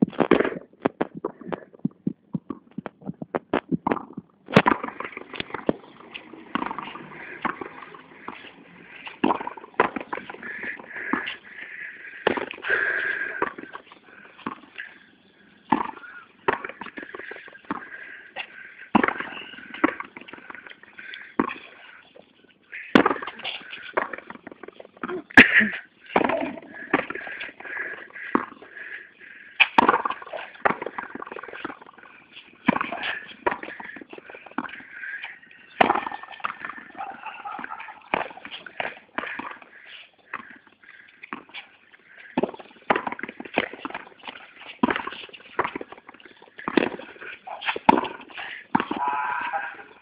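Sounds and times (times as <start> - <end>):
ball struck by rackets: 3.8 - 5.8, 6.4 - 8.4, 9.1 - 10.4, 19.0 - 20.2, 23.0 - 23.4, 26.2 - 27.2, 29.6 - 31.8, 32.7 - 33.9, 35.8 - 36.9, 42.4 - 44.1, 44.8 - 46.0, 46.6 - 47.0, 47.6 - 49.1.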